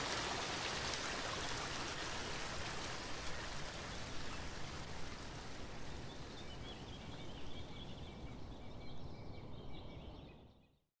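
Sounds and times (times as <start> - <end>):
river water rushing: 0.0 - 5.5.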